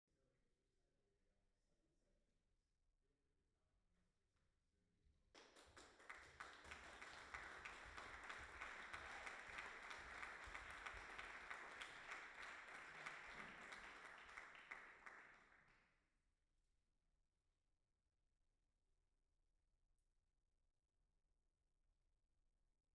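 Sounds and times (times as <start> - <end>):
audience applauding: 5.4 - 15.7.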